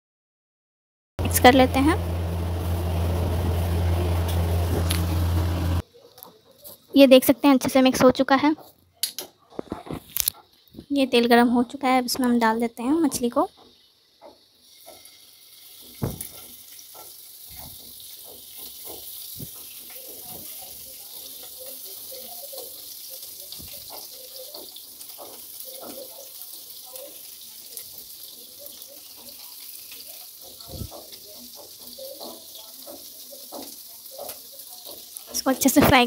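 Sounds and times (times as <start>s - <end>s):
hot oil sizzling: 1.2s - 5.8s, 10.2s - 36.0s
fish knocking on pan: 16.0s - 16.4s.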